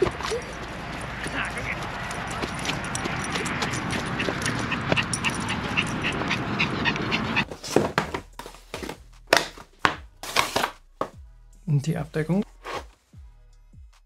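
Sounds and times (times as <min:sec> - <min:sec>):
dog panting: 0:00.0 - 0:07.5
movement noise rush: 0:00.0 - 0:07.7.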